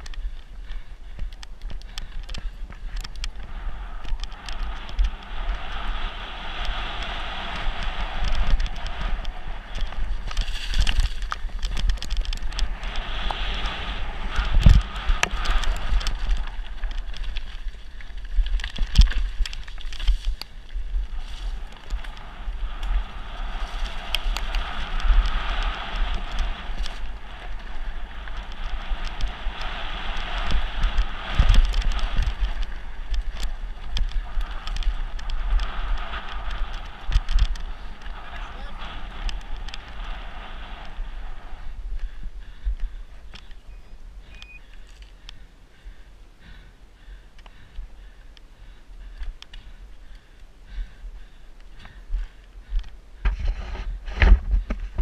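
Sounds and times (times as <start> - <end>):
bike rattling over bumps: 0.0 - 55.0
bike tyres crunching over gravel: 0.0 - 55.0
wind buffeting microphone: 0.0 - 55.0.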